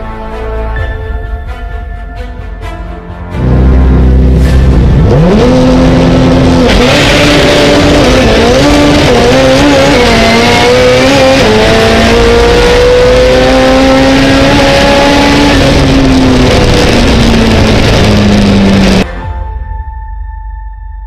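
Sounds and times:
race car engine revving: 3.4s - 19.1s.

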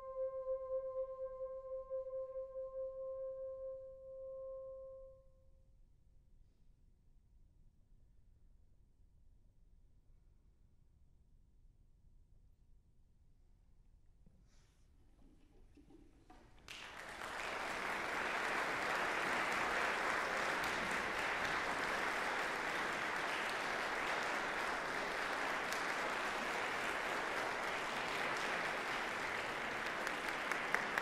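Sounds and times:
audience applauding: 16.3s - 31.0s.

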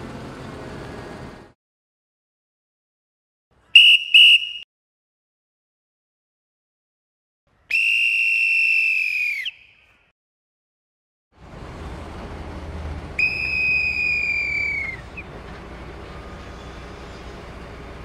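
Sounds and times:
engine running: 0.0s - 1.6s, 11.4s - 18.0s
long whistle blast: 3.8s - 4.7s, 7.7s - 9.8s, 13.2s - 15.1s.

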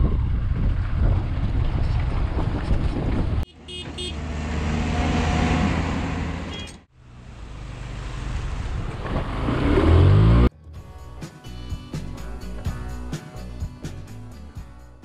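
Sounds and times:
wind and road noise: 0.0s - 10.5s.

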